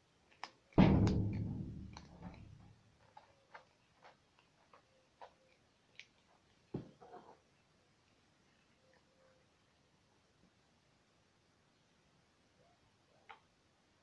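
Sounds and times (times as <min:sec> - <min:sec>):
loud knock with low ringing: 0:00.8 - 0:02.6.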